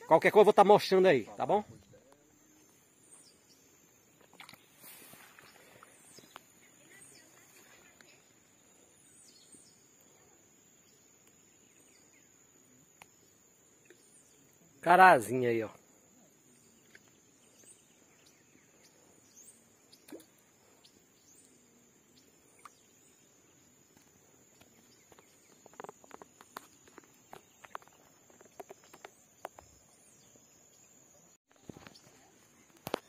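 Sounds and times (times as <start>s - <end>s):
faint high-pitched hiss: 0.2s - 33.0s
faint clicks and rustles: 23.9s - 30.0s.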